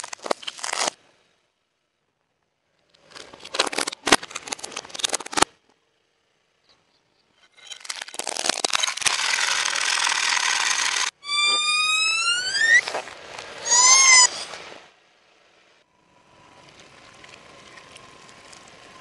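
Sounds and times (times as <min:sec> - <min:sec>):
plastic toys cracking under a tyre: 0:00.0 - 0:01.0, 0:03.0 - 0:05.6, 0:07.6 - 0:11.1.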